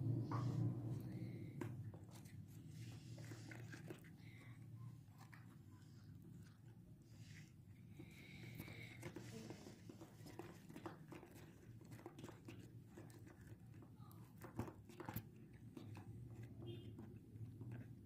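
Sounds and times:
low steady hum: 0.0s - 10.5s
spoon stirring wet dough: 0.0s - 18.0s.

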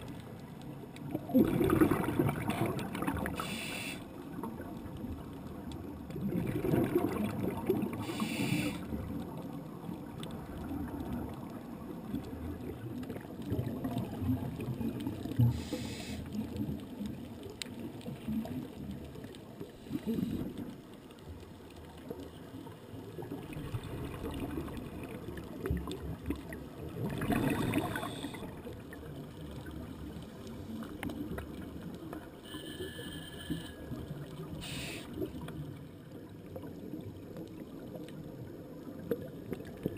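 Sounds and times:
regulator breathing with bubbling: 1.2s - 4.1s, 6.2s - 9.0s, 15.4s - 16.4s, 27.0s - 28.7s, 32.4s - 35.4s.

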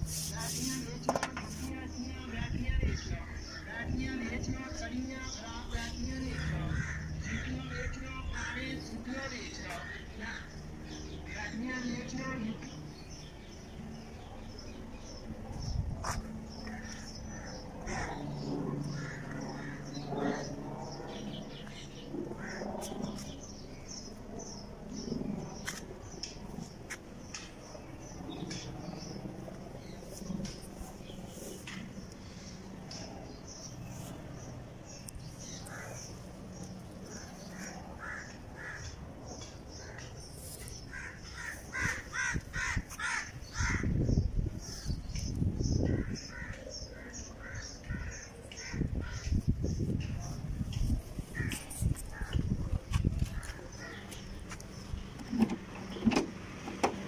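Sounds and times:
small birds chirping: 0.0s - 57.0s
crows cawing: 6.3s - 8.0s, 16.7s - 20.5s, 22.3s - 23.2s, 37.1s - 39.0s, 40.8s - 44.1s, 45.8s - 49.3s, 51.4s - 52.4s.

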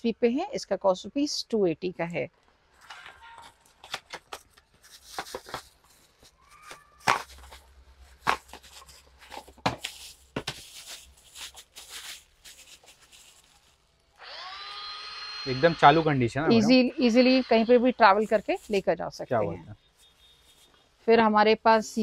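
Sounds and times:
cardboard packaging rustling: 2.8s - 14.2s, 18.1s - 18.9s
plastic bag rustling: 2.8s - 14.2s, 18.1s - 18.9s
small motor whirring: 14.2s - 18.5s.

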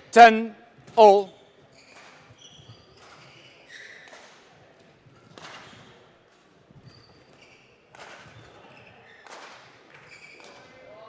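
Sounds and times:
shoe squeaks: 1.7s - 4.1s, 6.8s - 7.7s.

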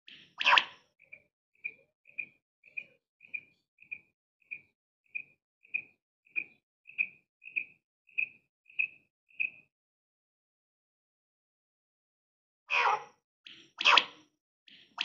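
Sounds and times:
quail calling: 12.7s - 13.1s, 13.8s - 14.2s.

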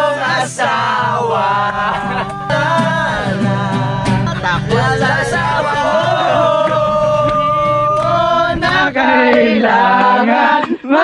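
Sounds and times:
acoustic guitar strumming: 0.0s - 10.9s
men singing together: 0.0s - 11.0s.

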